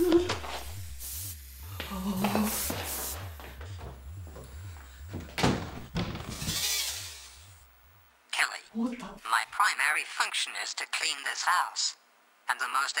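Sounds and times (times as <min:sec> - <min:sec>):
low throbbing pulse: 0:00.0 - 0:08.1.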